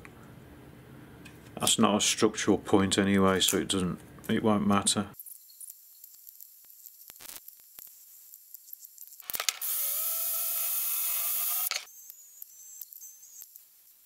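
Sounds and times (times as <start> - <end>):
cordless drill running: 9.2 - 11.9.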